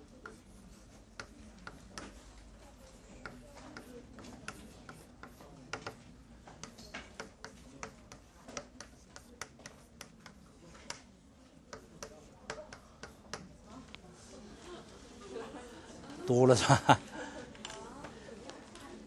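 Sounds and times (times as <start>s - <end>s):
chalk tapping on blackboard: 0.0s - 11.1s, 11.7s - 13.5s.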